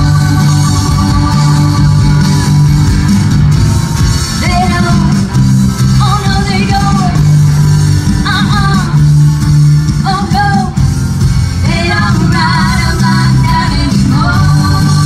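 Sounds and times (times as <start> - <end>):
woman singing: 0.0 - 2.4, 4.4 - 5.3, 5.9 - 7.3, 8.2 - 9.0, 10.0 - 10.8, 11.6 - 15.0
live band playing: 0.0 - 15.0.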